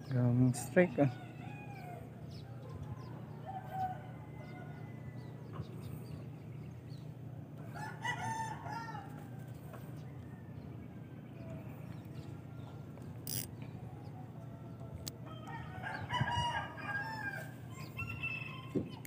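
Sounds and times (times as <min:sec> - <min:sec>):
steady low hum: 0:00.0 - 0:16.8
rooster crowing: 0:03.0 - 0:05.4, 0:07.6 - 0:10.6, 0:14.1 - 0:18.9.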